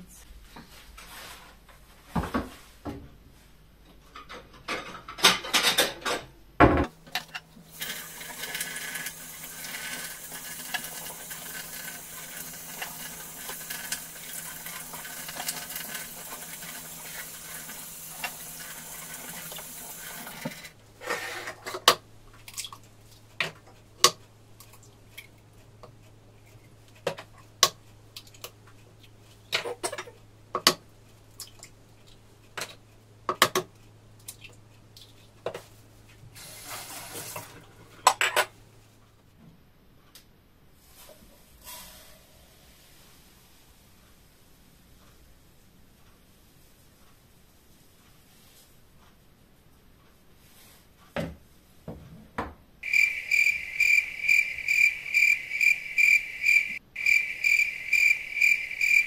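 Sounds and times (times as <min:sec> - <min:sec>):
kitchen tap running: 0:07.1 - 0:20.8.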